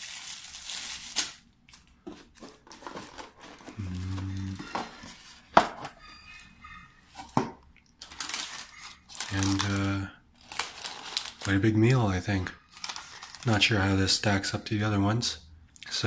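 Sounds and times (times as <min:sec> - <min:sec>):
plastic bag rustling: 0:00.0 - 0:05.9, 0:08.0 - 0:13.8.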